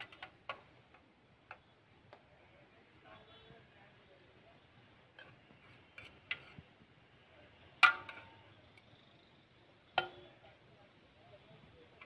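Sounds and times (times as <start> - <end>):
metal spoon clanking on pot: 7.8 - 8.6, 10.0 - 10.4.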